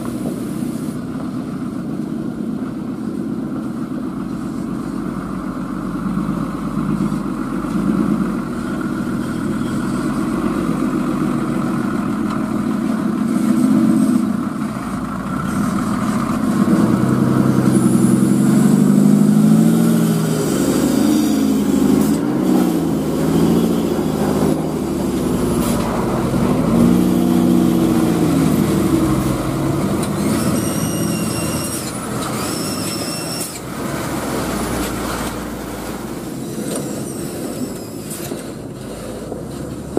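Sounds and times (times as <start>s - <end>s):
diesel truck engine revving: 0.0s - 39.9s
short high-pitched squeals: 30.0s - 39.2s.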